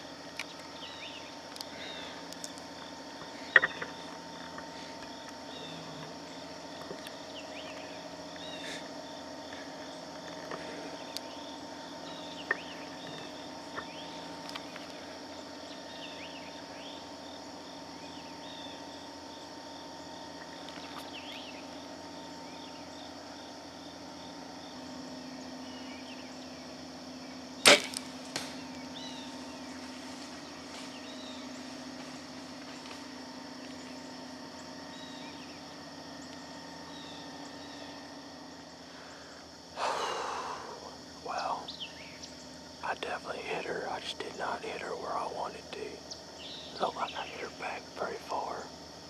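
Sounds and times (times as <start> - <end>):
insects chirping: 0.0 - 49.0
bow string snap: 27.6 - 28.7.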